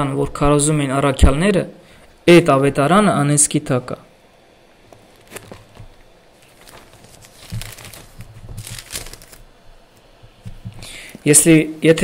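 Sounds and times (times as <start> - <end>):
paper pages rustling: 5.2 - 10.9.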